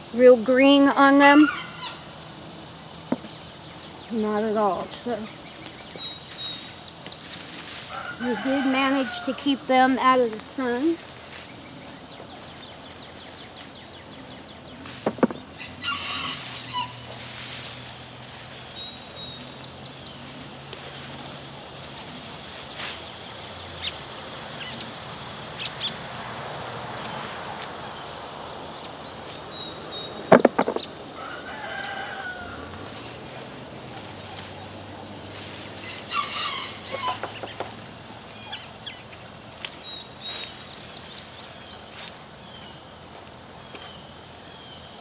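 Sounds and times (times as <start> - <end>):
rooster crowing: 7.7 - 9.7, 15.6 - 17.2, 31.0 - 35.1, 35.7 - 37.7
sharp knocks: 15.0 - 15.4, 30.3 - 30.9
chickens clucking: 33.3 - 39.8.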